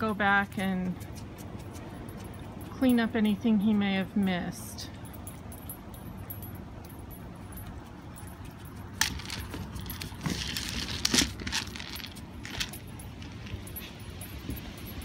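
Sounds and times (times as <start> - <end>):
kibble rattling in plastic toy: 9.0 - 13.7.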